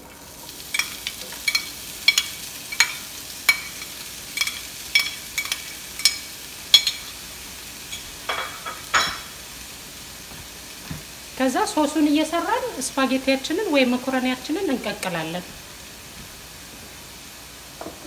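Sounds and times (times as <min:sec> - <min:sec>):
onions sizzling in oil: 0:00.0 - 0:18.0
utensil scraping across pan: 0:00.6 - 0:09.4
utensil clinking against pan: 0:00.7 - 0:07.2, 0:07.9 - 0:09.3.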